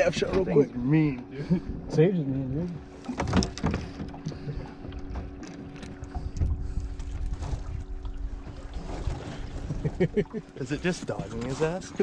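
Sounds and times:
steady low hum: 0.0 - 12.0
water lapping against boat hull: 0.0 - 12.0
wind buffeting microphone: 3.3 - 10.1.

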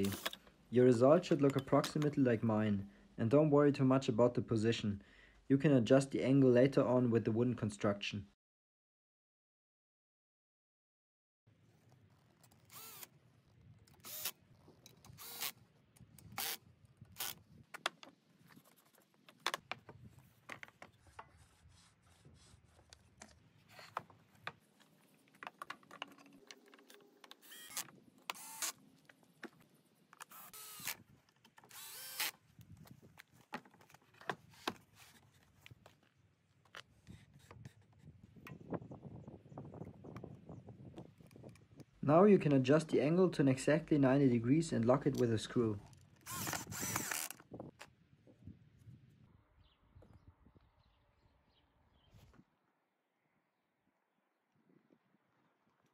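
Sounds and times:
cordless drill driving screws: 0.0 - 0.4, 12.6 - 13.1, 14.0 - 14.4, 15.1 - 15.6, 16.2 - 16.6, 27.4 - 28.8, 30.2 - 31.0, 31.7 - 32.4, 46.2 - 47.4.

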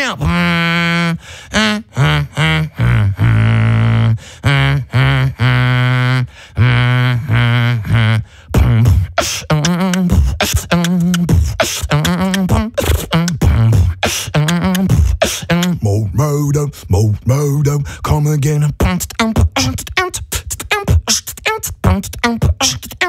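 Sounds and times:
hummed bass notes: 0.2 - 22.9
beatboxed drum hits: 7.4 - 15.8, 17.6 - 23.0.

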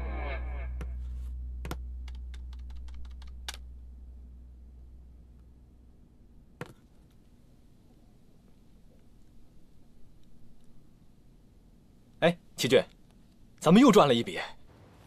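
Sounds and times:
low hum: 0.0 - 12.0
laptop keyboard typing: 1.6 - 3.6.

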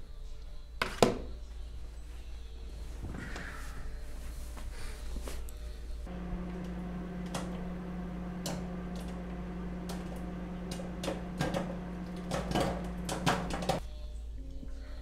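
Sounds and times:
microwave oven humming: 6.0 - 13.8.

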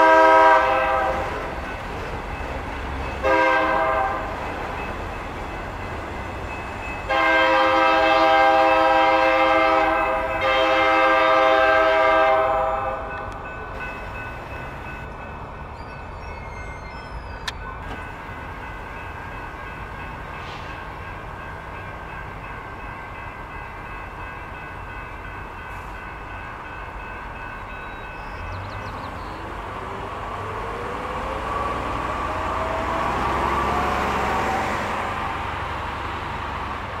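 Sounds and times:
freight train cars rumbling on rails: 0.0 - 37.0
wheels squealing: 13.8 - 20.8.

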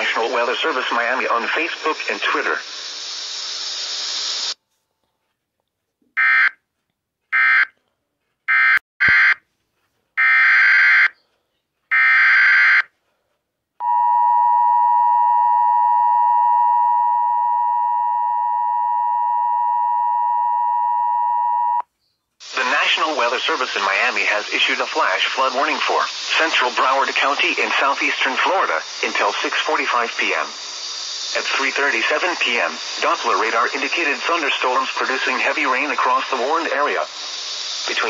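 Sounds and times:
hiss: 0.0 - 4.6, 22.4 - 38.0
harsh buzzy digital data bursts: 22.4 - 38.0.

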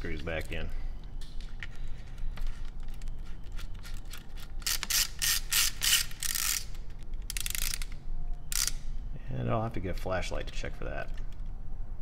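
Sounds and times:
spring-motor winding ratchet clicks: 3.6 - 8.9.

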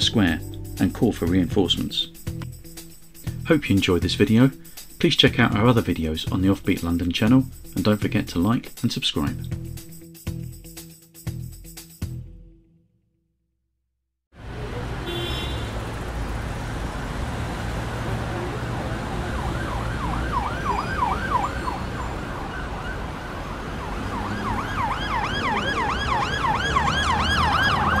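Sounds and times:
traffic noise: 14.4 - 28.0
siren yelping: 18.4 - 28.0.

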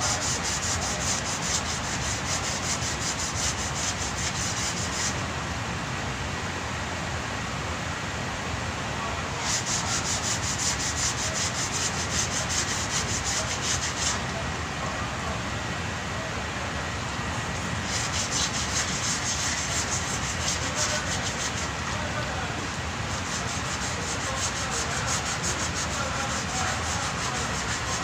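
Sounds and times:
sandpaper rubbing back and forth: 0.0 - 5.2, 9.4 - 14.2, 17.6 - 28.0.

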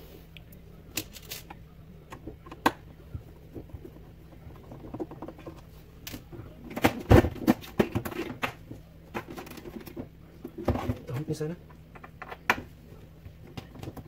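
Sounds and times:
plastic housing thumps and rattles: 2.2 - 11.2.

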